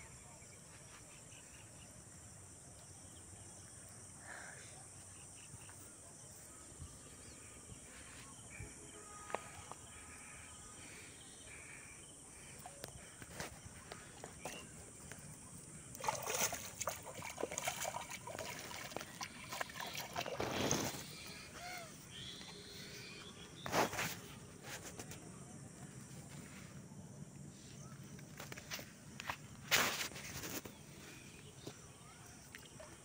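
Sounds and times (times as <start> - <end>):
water sloshing and splashing: 12.3 - 23.0, 31.6 - 33.0.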